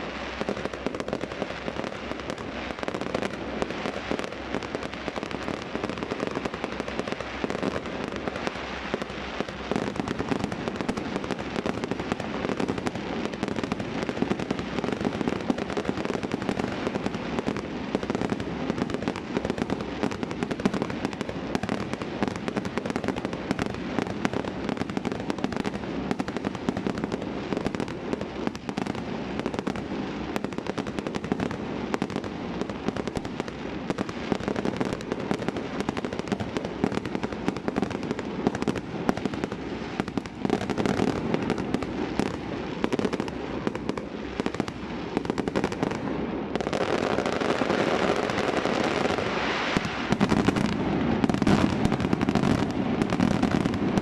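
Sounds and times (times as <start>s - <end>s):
fireworks bangs and crackling: 0.0s - 54.0s.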